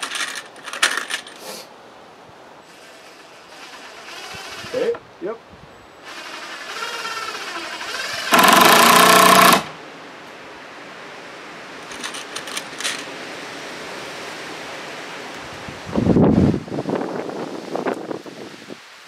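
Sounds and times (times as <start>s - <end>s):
cordless drill driving a screw: 2.7s - 4.8s, 6.1s - 9.7s.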